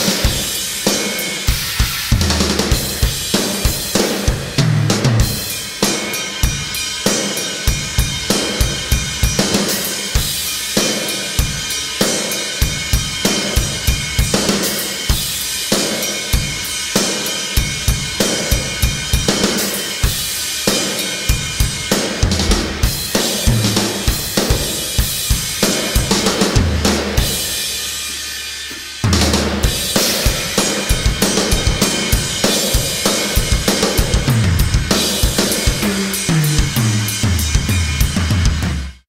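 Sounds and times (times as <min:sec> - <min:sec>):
cymbals and hi-hat ringing: 0:00.0 - 0:38.9
kick drum and snare beat: 0:21.3 - 0:27.4, 0:29.0 - 0:39.0
heavy low drum hit: 0:22.2 - 0:27.6, 0:29.0 - 0:38.9.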